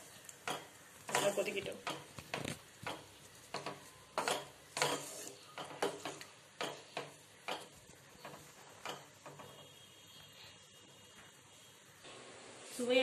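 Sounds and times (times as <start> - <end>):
ladle scraping and knocking pan: 0.4 - 9.8.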